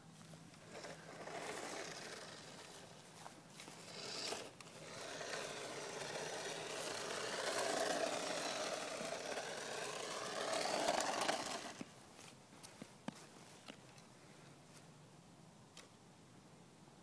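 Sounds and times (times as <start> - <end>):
toy car electric motor whining: 0.6 - 2.9, 3.7 - 11.8.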